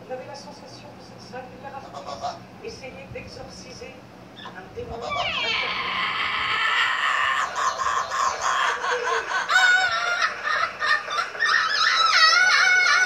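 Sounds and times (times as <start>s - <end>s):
parrot chattering and singing: 4.4s - 13.0s.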